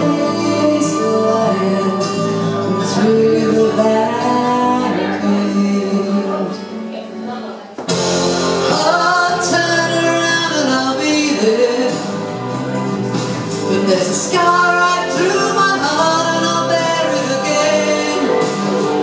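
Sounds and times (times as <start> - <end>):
woman singing into a microphone: 0.0 - 7.6
instrumental backing music: 0.0 - 19.0.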